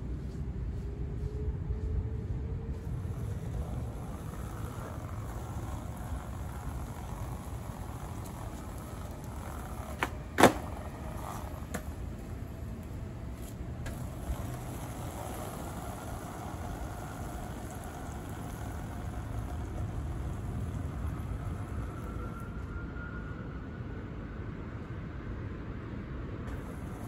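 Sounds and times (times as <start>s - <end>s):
distant traffic hum: 0.0s - 27.0s
skateboard slapping on pavement: 3.0s - 22.3s, 26.5s - 27.0s.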